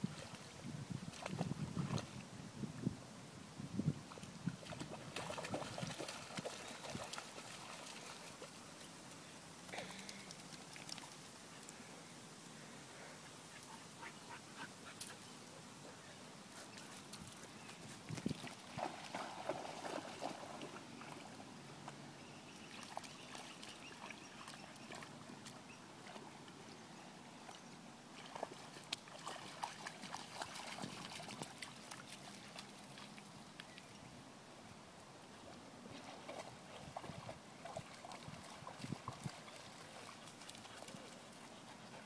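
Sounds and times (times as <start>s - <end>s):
dogs splashing in water: 4.6s - 8.6s, 18.1s - 21.4s, 28.1s - 33.1s, 36.0s - 42.0s.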